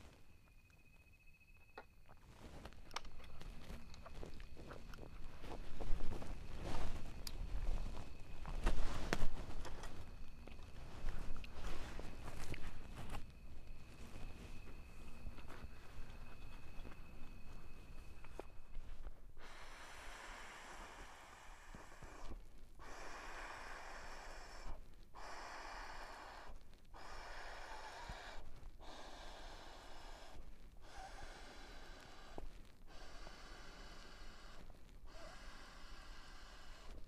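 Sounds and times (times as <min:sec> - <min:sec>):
person blowing into inflatable pillow: 0:19.4 - 0:37.0.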